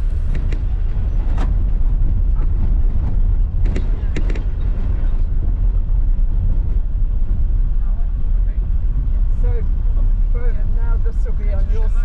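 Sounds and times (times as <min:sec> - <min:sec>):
vehicle knocks and rattles: 0:00.0 - 0:07.7
vehicle rumbling on gravel: 0:00.0 - 0:11.7.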